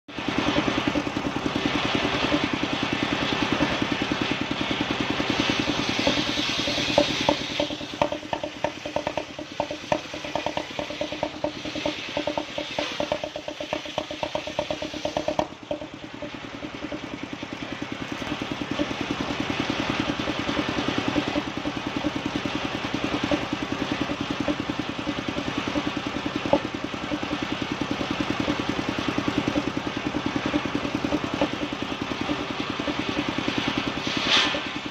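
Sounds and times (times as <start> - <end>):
engine running: 0.0 - 34.9
circular saw cutting log: 0.1 - 34.9
rapid ticking: 0.1 - 34.9.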